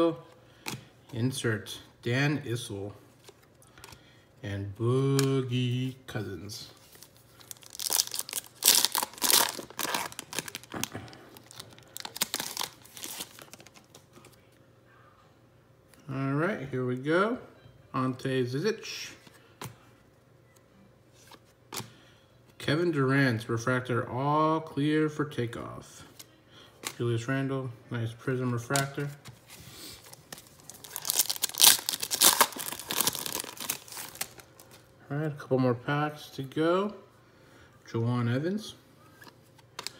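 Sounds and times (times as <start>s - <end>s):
foil wrapper crinkling and tearing: 6.9s - 14.0s, 30.0s - 34.8s.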